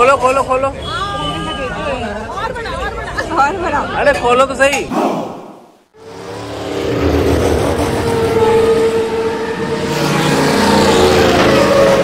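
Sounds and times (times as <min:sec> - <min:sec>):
loud humming drone: 0:06.0 - 0:12.0.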